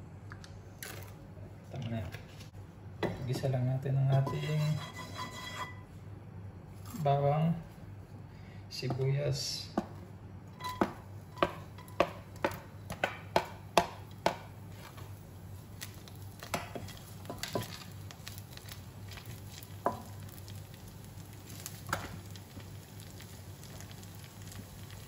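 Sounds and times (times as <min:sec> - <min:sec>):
soft stirring: 0:03.2 - 0:06.0
wooden spatula knocking on pan: 0:10.6 - 0:14.5
garlic sizzling in oil: 0:14.7 - 0:25.0.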